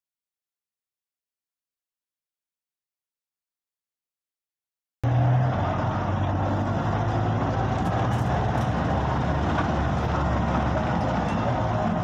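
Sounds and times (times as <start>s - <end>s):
bus engine hum: 5.0s - 12.0s
road noise inside bus: 5.0s - 12.0s.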